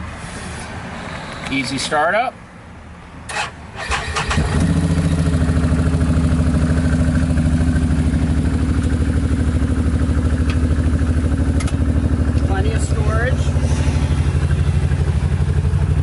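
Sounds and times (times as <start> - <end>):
engine starting and idling: 3.3 - 5.5.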